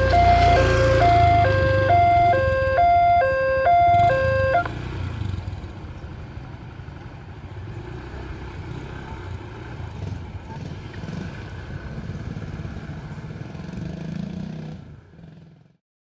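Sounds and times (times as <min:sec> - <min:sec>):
level crossing two-tone alarm: 0:00.0 - 0:04.7
motorcycle engines running: 0:00.0 - 0:15.8.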